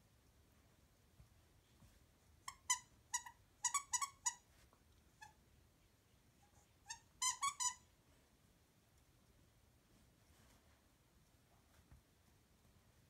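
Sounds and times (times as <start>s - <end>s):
dog toy squeaking: 2.5s - 4.4s, 6.8s - 7.8s.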